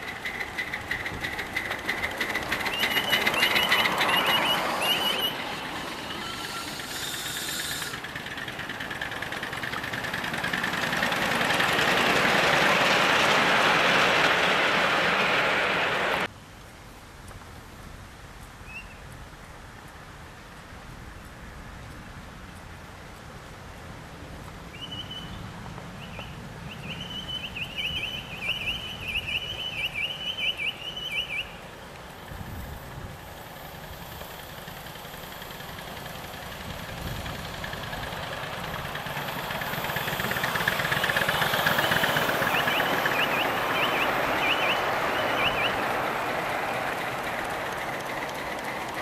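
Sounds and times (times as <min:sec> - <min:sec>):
miniature steam locomotive running: 0:00.0 - 0:16.3, 0:26.8 - 0:49.0
high piping whistle: 0:02.6 - 0:08.0, 0:26.2 - 0:31.6, 0:39.9 - 0:46.0.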